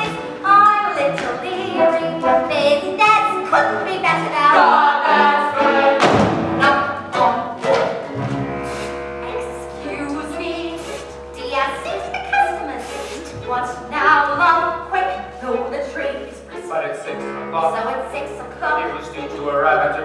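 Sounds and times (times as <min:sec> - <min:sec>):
pit orchestra playing: 0:00.0 - 0:20.0
ensemble of voices singing: 0:03.4 - 0:08.1.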